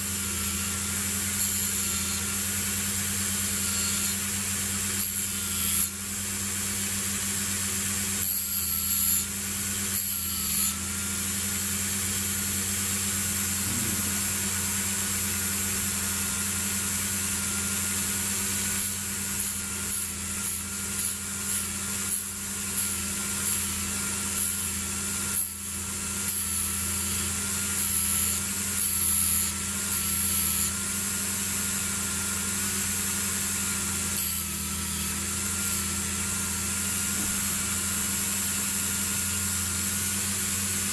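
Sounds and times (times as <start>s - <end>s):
rotary tool motor whine: 0.0s - 40.9s.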